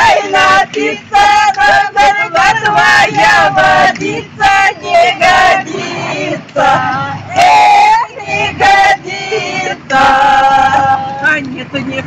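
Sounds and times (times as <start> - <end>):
women singing folk song in unison: 0.0 - 12.0.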